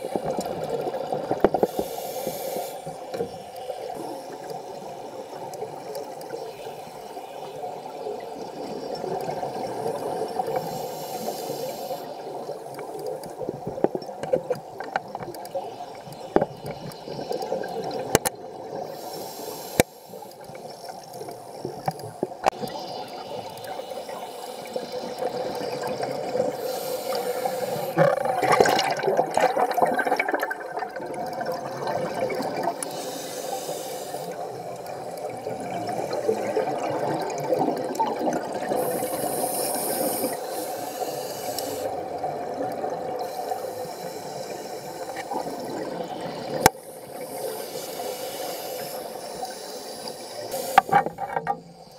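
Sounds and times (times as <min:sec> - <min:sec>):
exhaled bubbles gurgling: 0:00.0 - 0:19.1, 0:20.4 - 0:47.8
scuba regulator hiss: 0:01.6 - 0:04.2, 0:10.5 - 0:12.5, 0:18.9 - 0:20.9, 0:23.2 - 0:25.0, 0:26.5 - 0:28.0, 0:32.8 - 0:35.1, 0:38.8 - 0:42.0, 0:43.2 - 0:51.9.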